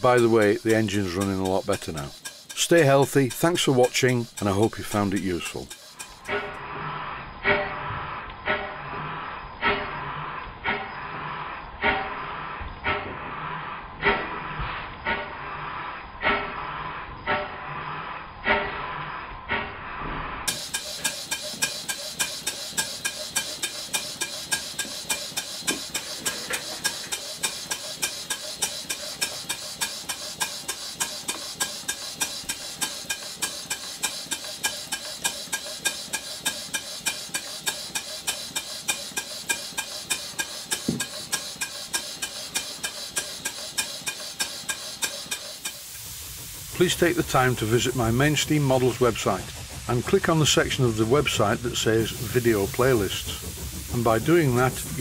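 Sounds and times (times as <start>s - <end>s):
model steam engine running: 0.0s - 7.0s, 20.5s - 55.0s.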